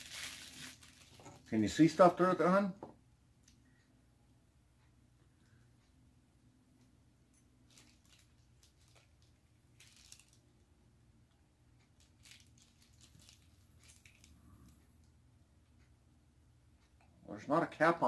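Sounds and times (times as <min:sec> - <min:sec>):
plastic rustling: 0:00.0 - 0:02.1, 0:07.7 - 0:10.6, 0:12.0 - 0:14.7.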